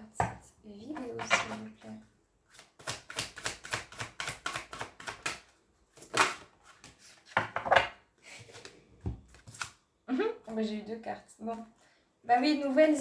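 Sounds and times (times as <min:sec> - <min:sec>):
cards being shuffled: 0:08.4 - 0:09.8.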